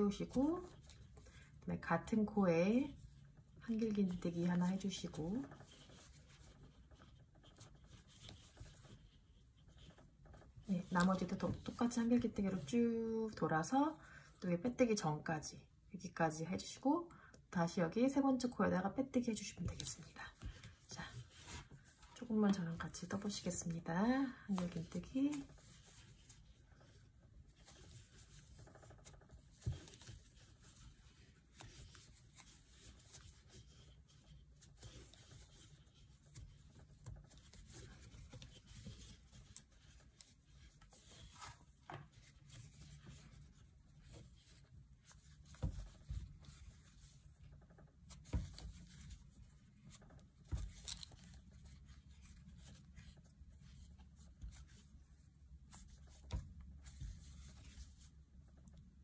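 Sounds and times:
yarn rustling through stitches: 0.0 - 59.0.

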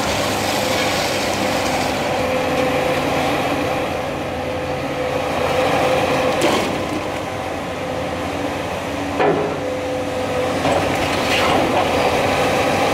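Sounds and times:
excavator engine and hydraulic whine: 0.0 - 12.9
sharp metal knocks: 9.2 - 9.7.

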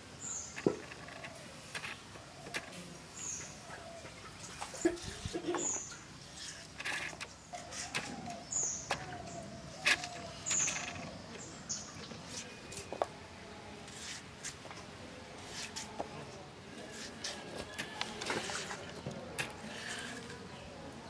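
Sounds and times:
bird chirping: 0.2 - 6.6, 7.2 - 13.1.

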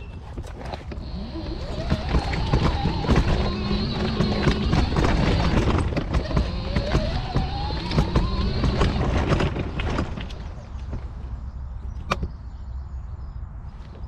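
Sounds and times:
scooter rattling over rough ground: 0.0 - 12.3
motor whine rising: 0.8 - 10.5.

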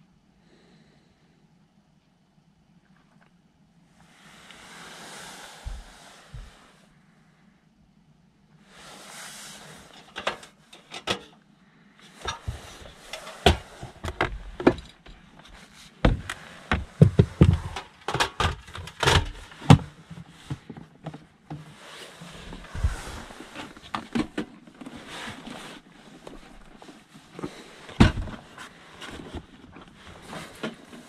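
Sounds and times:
rustling: 2.8 - 7.5, 11.8 - 31.0
clicks knocks and thumps of gear: 12.2 - 21.2.

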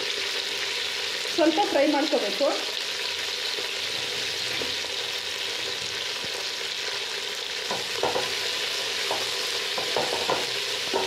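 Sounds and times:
greens sizzling in hot oil: 0.0 - 11.0.

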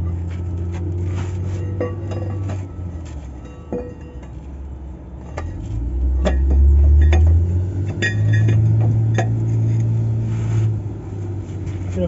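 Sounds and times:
metal tools clinking: 1.4 - 4.6.

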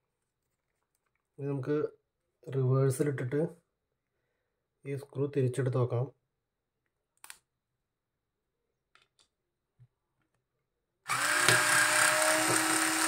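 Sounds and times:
cordless screwdriver running: 11.1 - 13.0.

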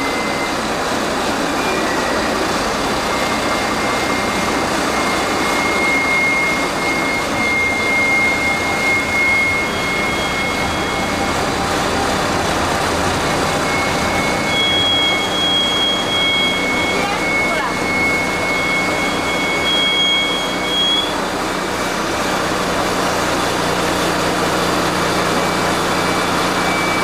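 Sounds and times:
higher whistle: 0.0 - 27.0
rushing mechanical noise: 0.0 - 27.0
thin high whistle: 0.0 - 27.0.

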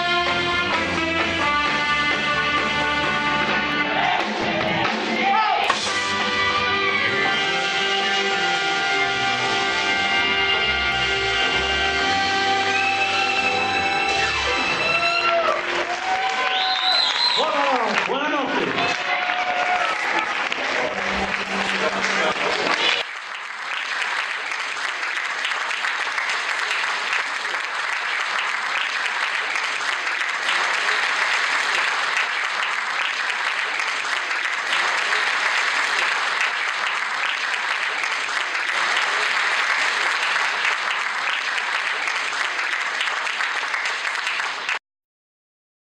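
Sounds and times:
audience applauding: 11.0 - 44.8.

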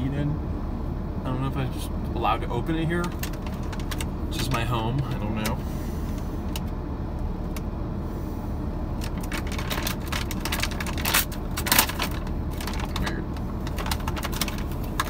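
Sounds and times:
steady low hum: 0.0 - 15.0
bag crinkling: 3.1 - 4.1, 9.0 - 15.0.

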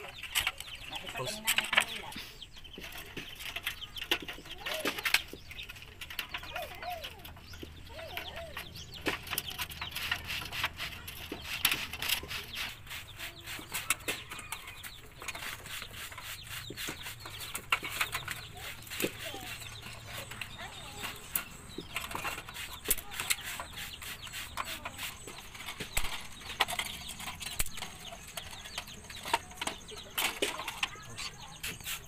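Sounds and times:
chickens clucking: 0.0 - 32.0
metal sheet clicking and rattling: 2.8 - 12.8, 17.4 - 32.0.

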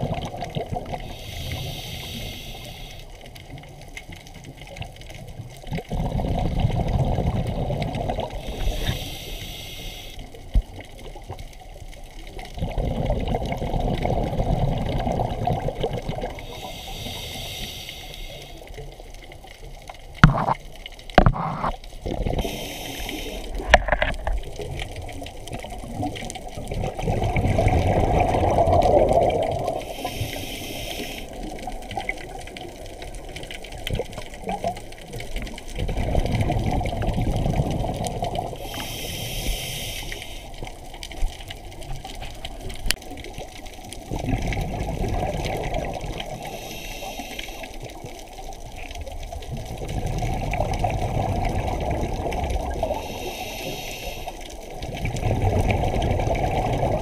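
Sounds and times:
exhaled bubbles rushing: 0.0 - 1.1, 5.6 - 9.0, 12.3 - 16.7, 21.2 - 22.6, 23.3 - 30.0, 31.3 - 38.8, 41.5 - 46.6, 47.8 - 53.2, 54.7 - 57.0
diver breathing through regulator: 1.0 - 3.2, 8.3 - 10.4, 16.4 - 18.7, 22.3 - 24.1, 29.2 - 31.6, 38.5 - 40.7, 46.3 - 48.0, 52.8 - 54.7.

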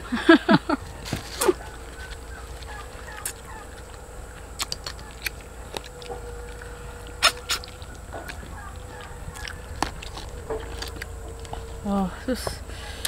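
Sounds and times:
faint steady hum: 0.0 - 13.0
chewing smacks and clicks: 4.6 - 11.6.

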